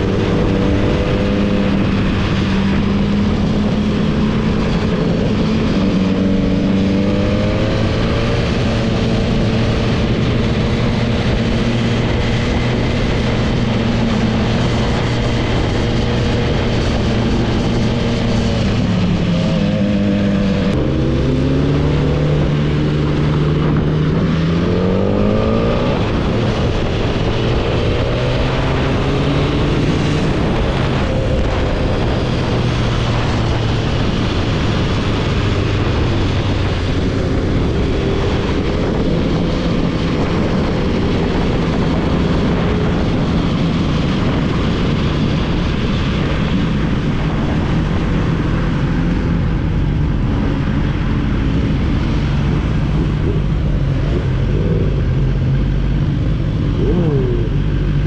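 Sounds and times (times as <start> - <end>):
motorcycle engine revving: 0.0 - 58.0
wind rush: 0.0 - 58.0.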